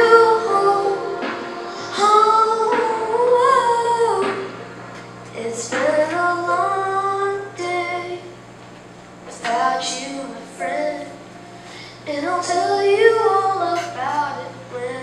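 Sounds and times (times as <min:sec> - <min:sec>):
boy singing into a microphone: 0:00.0 - 0:04.5, 0:05.4 - 0:08.3, 0:09.3 - 0:15.0.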